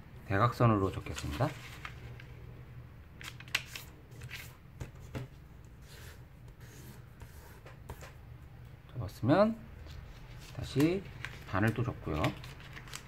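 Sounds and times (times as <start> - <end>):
paper rustling and crinkling: 0.9 - 2.4, 3.2 - 5.3, 9.8 - 13.0.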